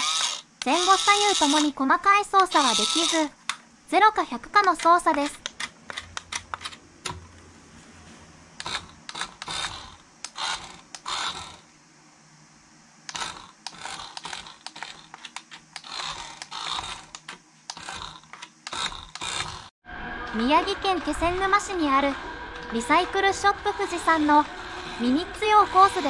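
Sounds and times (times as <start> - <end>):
toy car motor whirring: 0.0 - 1.8, 2.4 - 3.3, 8.6 - 11.7, 13.1 - 19.7.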